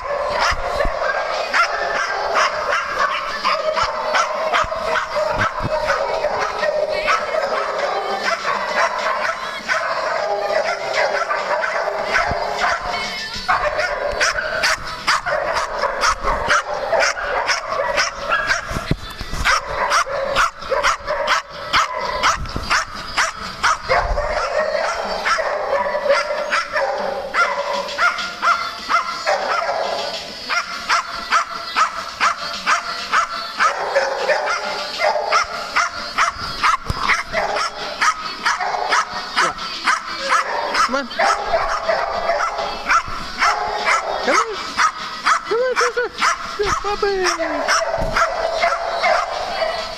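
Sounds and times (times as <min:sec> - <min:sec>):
dogs barking and yipping: 0:00.0 - 0:49.9.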